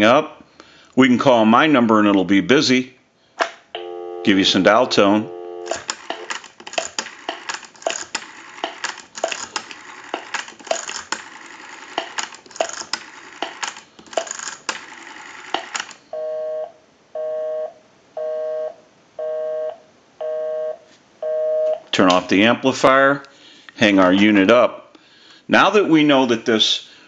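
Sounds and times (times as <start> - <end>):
rotary dial whirring and clicking: 5.7 - 16.0
busy signal beeps: 16.2 - 21.8.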